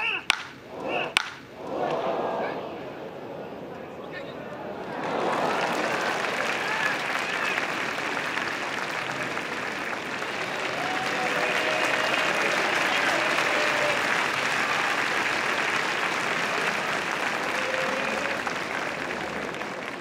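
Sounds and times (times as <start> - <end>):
voices calling out: 0.0 - 20.0
crowd applauding and cheering: 0.8 - 20.0.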